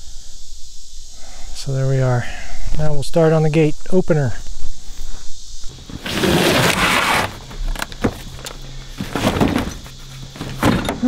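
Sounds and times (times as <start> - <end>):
knocks and thumps: 5.7 - 11.0
cardboard box scraping: 5.8 - 8.4, 9.0 - 10.8.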